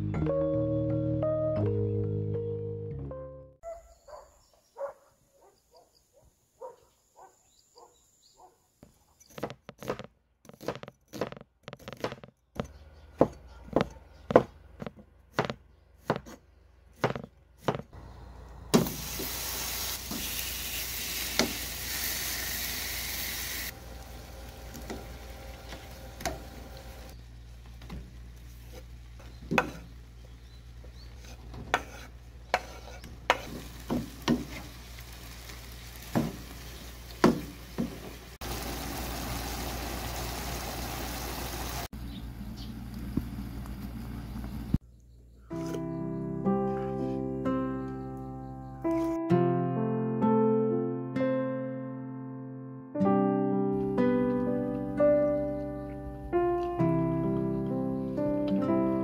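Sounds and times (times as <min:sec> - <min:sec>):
meat sizzling in a frying pan: 0:18.8 - 0:23.7, 0:33.5 - 0:41.9
wooden spatula scraping a pan: 0:28.4 - 0:30.3, 0:30.9 - 0:34.8.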